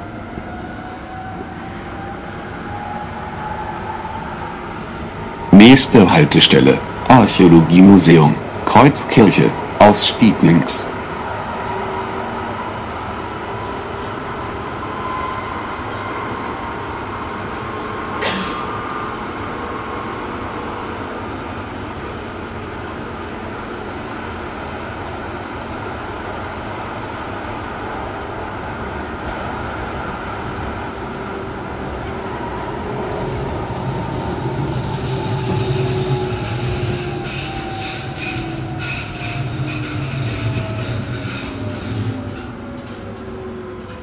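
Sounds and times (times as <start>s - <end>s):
train wheels rumbling: 25.8s - 44.0s.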